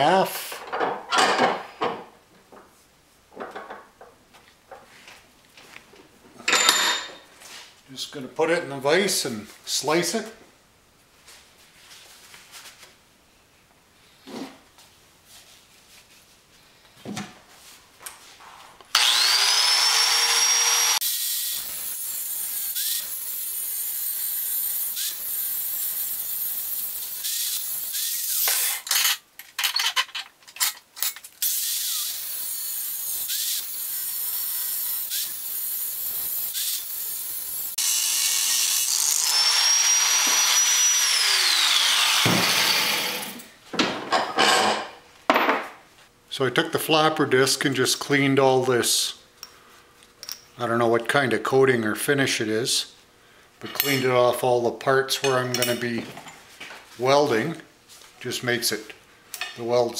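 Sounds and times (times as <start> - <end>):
angle grinder whining: 18.9 - 28.8, 31.4 - 43.5
grinder cutting steel: 18.9 - 29.2, 31.4 - 43.5.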